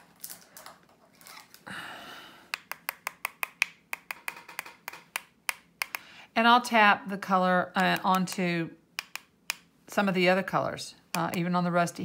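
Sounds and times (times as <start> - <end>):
rustling of tools: 0.0 - 1.6.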